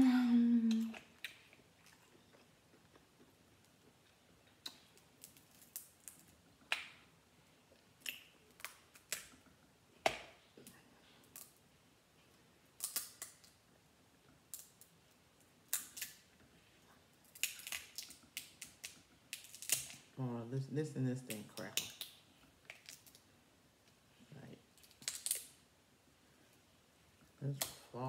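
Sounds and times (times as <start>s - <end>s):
crab shells cracking: 4.5s - 7.0s, 12.8s - 13.6s, 15.6s - 16.3s, 17.2s - 20.1s, 21.3s - 23.3s, 24.8s - 25.6s.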